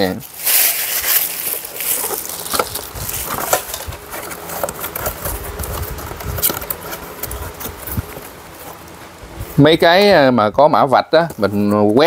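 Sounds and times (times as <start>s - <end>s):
plastic bag crinkling: 0.1s - 9.0s.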